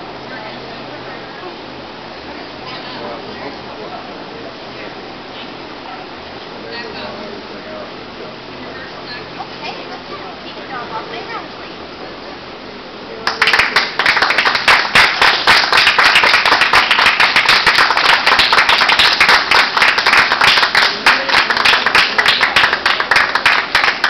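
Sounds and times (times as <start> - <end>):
hands clapping: 13.2 - 24.0.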